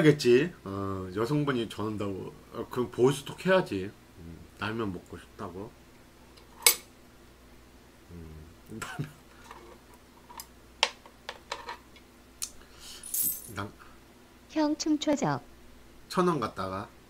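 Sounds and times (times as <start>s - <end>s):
person humming low: 4.2s - 4.5s, 8.1s - 8.9s.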